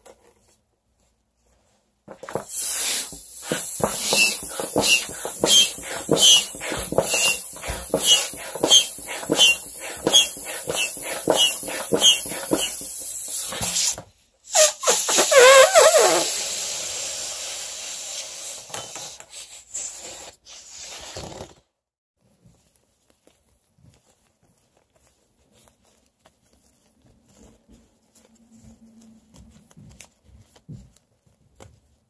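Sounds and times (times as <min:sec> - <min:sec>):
foot pump puffing and squeaking: 0:02.3 - 0:16.5
air squealing from balloon neck: 0:02.5 - 0:21.4.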